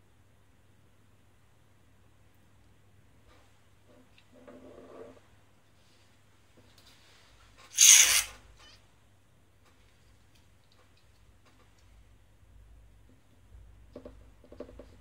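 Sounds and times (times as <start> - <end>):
burst of hissing: 7.7 - 8.4.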